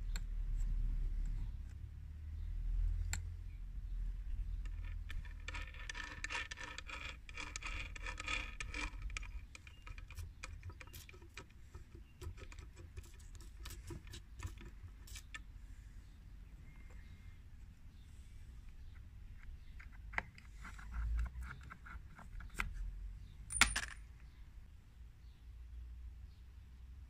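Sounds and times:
metal gears clicking and rattling: 0:04.6 - 0:11.6.

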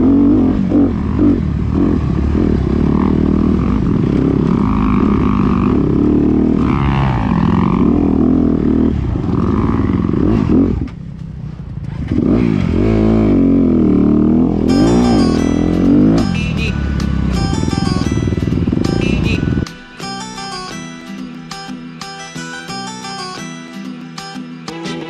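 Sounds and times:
dirt bike engine revving: 0:00.0 - 0:11.0, 0:11.8 - 0:19.9.

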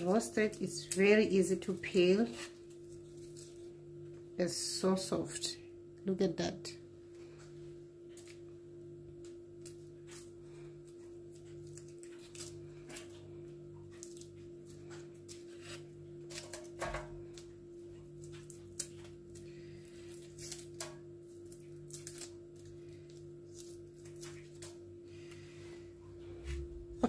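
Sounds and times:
foil crinkling: 0:00.0 - 0:03.7, 0:09.6 - 0:24.8
garlic skin crackling: 0:00.0 - 0:03.7, 0:09.5 - 0:24.8
steady low hum: 0:00.0 - 0:27.0.

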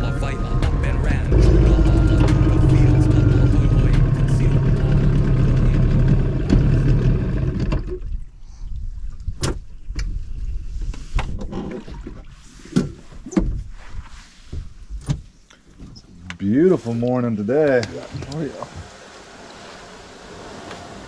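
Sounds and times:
motorboat engine running: 0:00.0 - 0:08.1.

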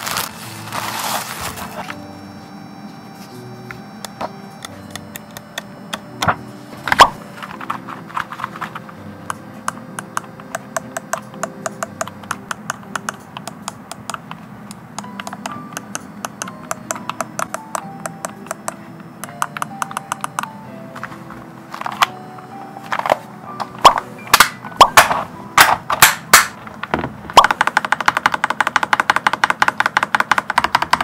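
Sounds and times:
mechanical keyboard key clicks: 0:07.0 - 0:20.5, 0:27.4 - 0:31.0.

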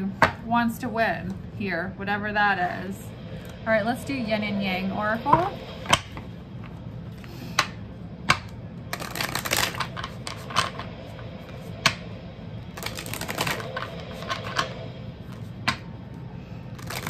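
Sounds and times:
cards being shuffled: 0:08.9 - 0:10.9, 0:12.8 - 0:14.7, 0:16.7 - 0:17.0.

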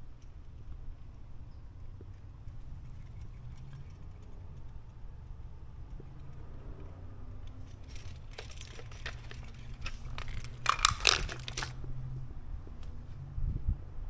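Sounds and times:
low steady hum: 0:00.0 - 0:14.0
objects clattering on concrete: 0:07.6 - 0:11.8.

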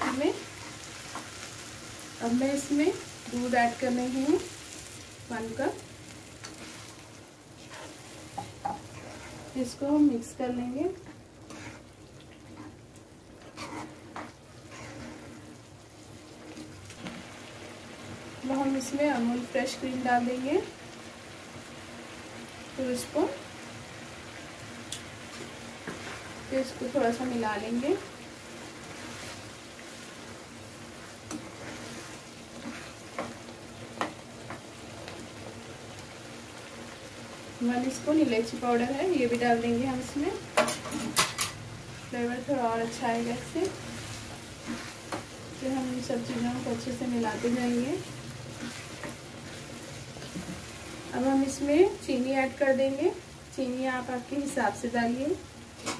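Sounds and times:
soft steady sizzle: 0:00.0 - 0:55.9
spatula scraping in a pan: 0:06.4 - 0:09.9, 0:11.0 - 0:12.8, 0:13.4 - 0:15.6, 0:25.3 - 0:34.6, 0:40.6 - 0:51.1
hot pan hissing: 0:13.8 - 0:55.9.

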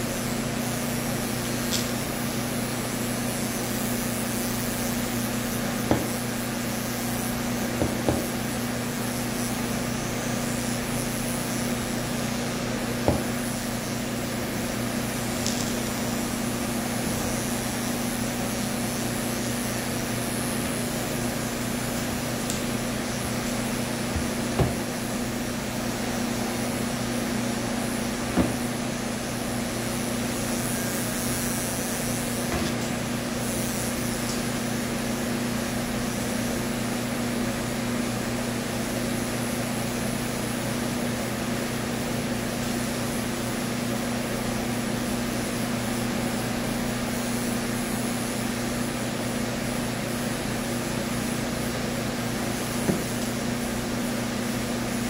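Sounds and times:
electric clippers buzzing: 0:00.0 - 0:55.0.

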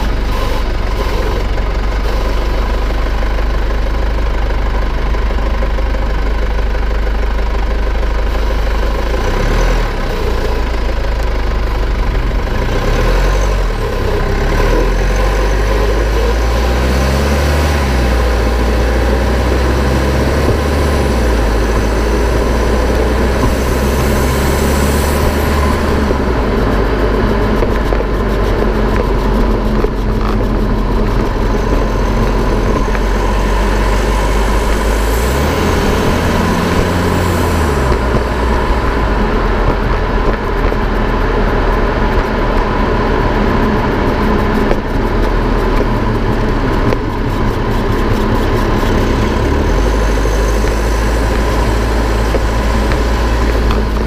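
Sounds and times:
tyre and road rumble: 0:00.0 - 0:54.0.

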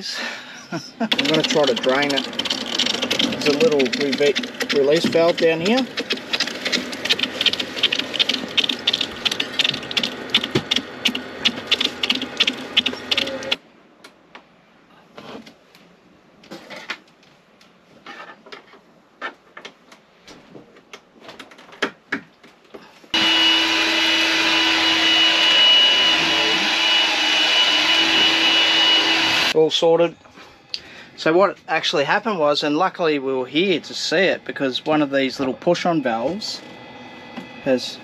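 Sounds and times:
vacuum cleaner whining: 0:01.1 - 0:13.6, 0:23.1 - 0:29.6
water spraying from a fitting: 0:01.1 - 0:13.6.

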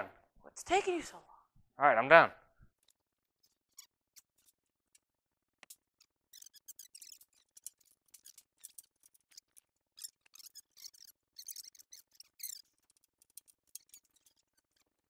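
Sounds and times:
high-pitched squeaks: 0:03.4 - 0:04.6, 0:05.6 - 0:15.0.

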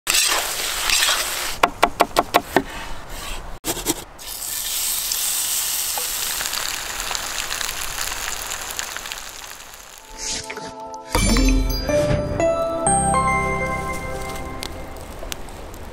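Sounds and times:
food sizzling in a pan: 0:04.2 - 0:10.3.

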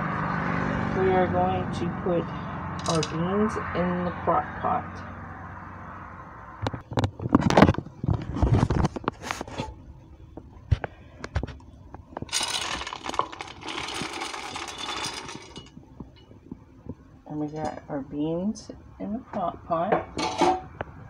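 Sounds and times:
peas pouring rattling: 0:12.3 - 0:15.7
pot knocking and clattering: 0:20.0 - 0:20.7.

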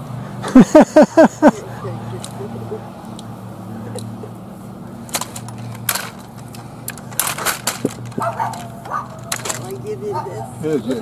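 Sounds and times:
walker clanking: 0:01.6 - 0:11.0
plastic cart rattling over grass: 0:04.7 - 0:11.0.

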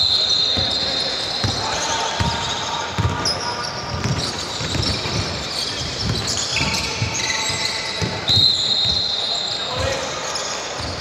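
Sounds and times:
basketball dribbling on court: 0:03.9 - 0:07.2.

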